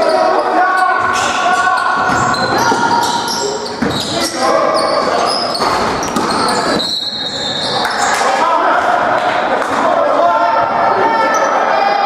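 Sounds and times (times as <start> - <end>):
sneakers squeaking on court: 0.0 - 8.2
basketball bouncing: 2.0 - 4.2.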